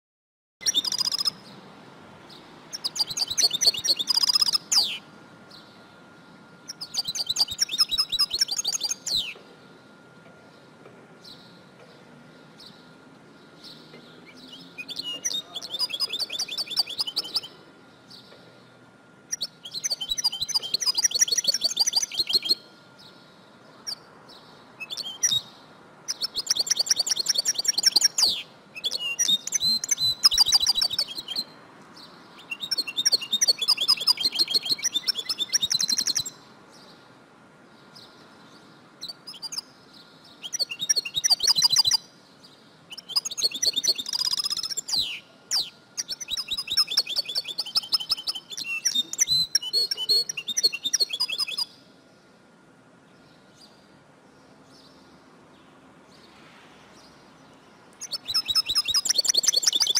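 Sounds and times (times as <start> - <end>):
finch twittering: 0.6 - 1.5, 2.3 - 5.0, 6.7 - 9.4, 13.6 - 18.3, 19.3 - 22.6, 24.8 - 31.5, 32.4 - 36.4, 40.4 - 42.1, 42.9 - 51.7, 58.0 - 59.9.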